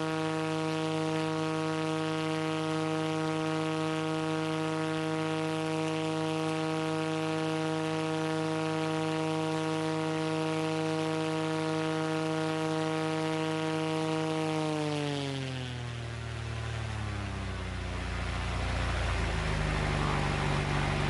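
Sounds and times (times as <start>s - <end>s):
aircraft engine and propeller drone: 0.0s - 21.0s.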